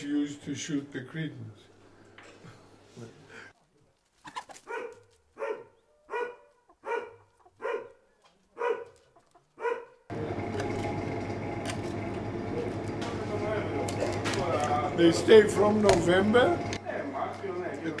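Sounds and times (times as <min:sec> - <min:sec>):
dog barking: 0:04.6 - 0:10.1
steady background hum: 0:10.1 - 0:18.0.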